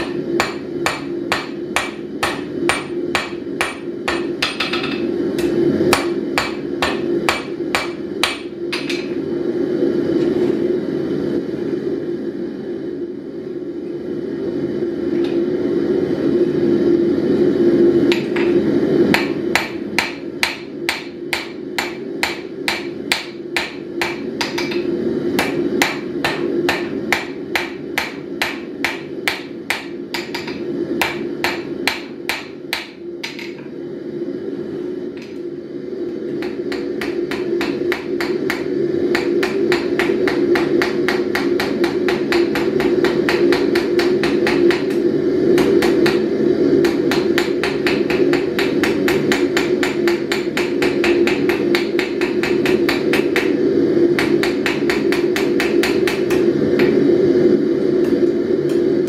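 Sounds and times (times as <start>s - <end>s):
hammer striking steel on anvil: 0.0s - 9.2s, 18.1s - 33.6s, 36.4s - 45.0s, 45.6s - 46.2s, 46.8s - 53.6s, 54.2s - 57.0s
gas forge burners roaring: 0.0s - 59.0s.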